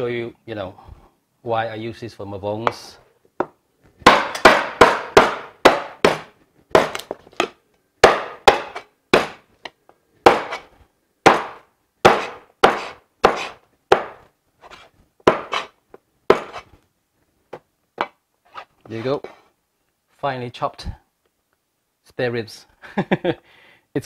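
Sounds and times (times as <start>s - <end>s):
cleaver chopping through bone: 4.0s - 9.4s, 10.3s - 10.6s, 11.3s - 14.2s, 15.3s - 15.7s, 16.3s - 16.6s.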